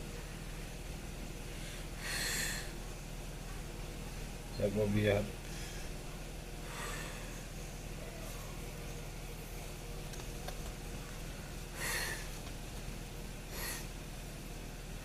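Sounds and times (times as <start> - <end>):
steady low hum: 0.0 - 15.0
short airy breaths: 1.5 - 2.8, 6.6 - 7.5, 11.7 - 12.4, 13.5 - 14.0.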